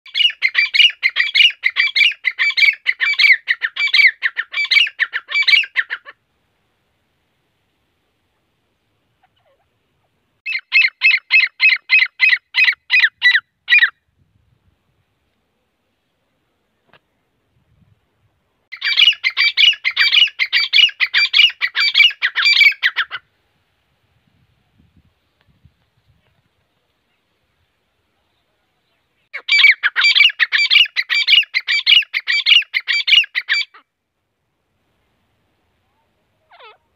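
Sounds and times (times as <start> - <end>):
bird calling shrilly: 0.1 - 6.2, 10.4 - 14.0, 18.7 - 23.2, 29.3 - 33.9, 36.5 - 36.8.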